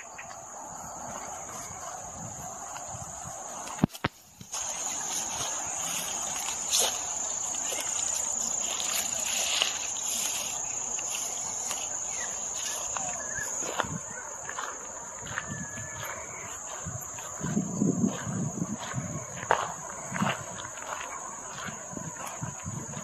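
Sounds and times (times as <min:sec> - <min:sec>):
insects singing: 0:00.0 - 0:23.0.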